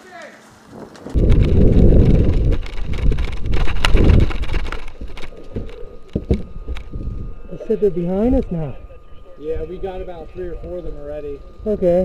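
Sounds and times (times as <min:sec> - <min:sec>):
running footfalls: 0:00.0 - 0:05.2
wind buffeting microphone: 0:00.6 - 0:12.0.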